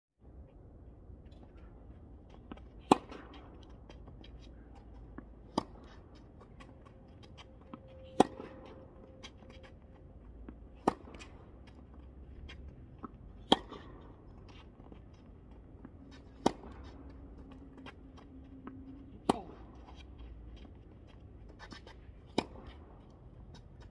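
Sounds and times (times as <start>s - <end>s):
racket striking tennis ball: 2.6s - 3.6s, 5.4s - 6.7s, 8.1s - 9.5s, 10.8s - 11.4s, 12.5s - 14.2s, 16.1s - 17.0s, 19.2s - 20.1s, 21.6s - 22.9s.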